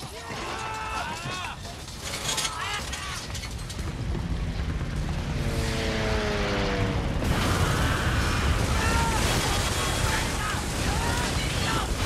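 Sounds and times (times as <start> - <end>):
low rumble: 3.2 - 9.2.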